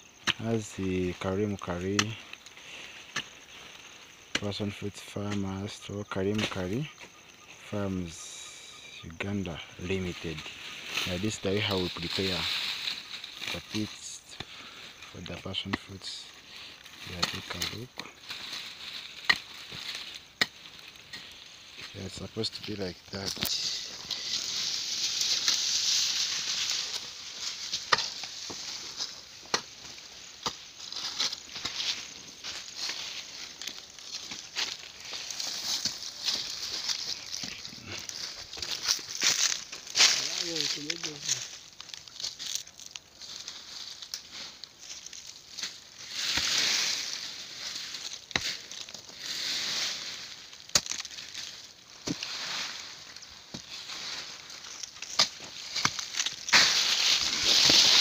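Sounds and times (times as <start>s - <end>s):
soil and dry leaves scraping: 0.0s - 58.0s
hoe striking dry soil: 0.2s - 0.6s, 1.8s - 2.2s, 17.0s - 22.0s, 27.5s - 33.0s, 47.8s - 49.0s, 49.6s - 58.0s
hoe scraping dry soil: 45.8s - 58.0s.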